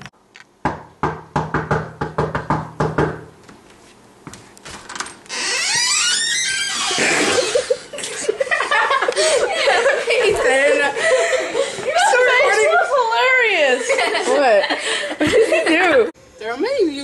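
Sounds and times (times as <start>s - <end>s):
knocks on wooden door: 0.6s - 3.3s.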